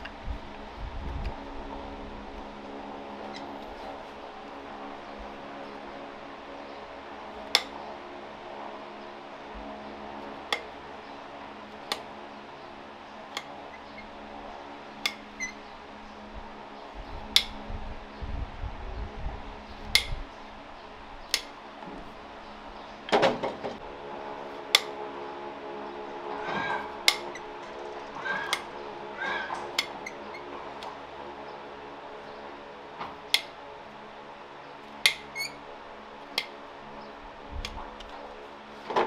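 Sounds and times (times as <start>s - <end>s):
steady low hum: 0.0s - 39.0s
metal tools clicking on hoof: 29.3s - 31.0s.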